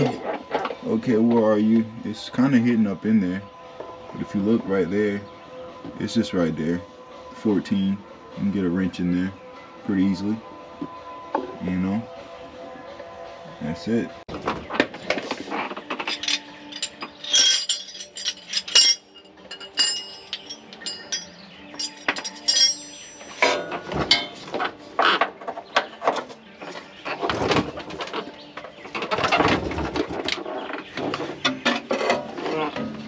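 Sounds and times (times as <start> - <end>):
birds chirping: 12.4 - 33.0
tools clanking on steel: 14.3 - 33.0.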